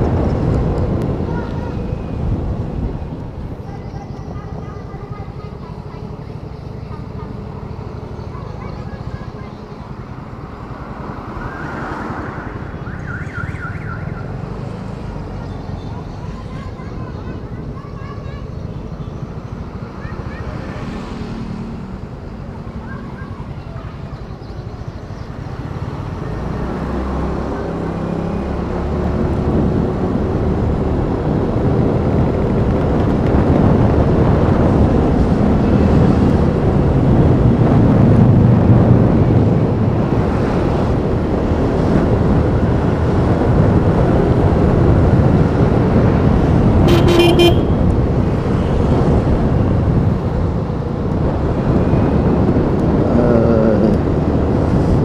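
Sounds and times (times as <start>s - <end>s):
wind over microphone: 0.0s - 21.0s, 21.7s - 55.0s
scooter engine and road noise: 0.0s - 55.0s
vehicle horn toot: 46.8s - 47.9s.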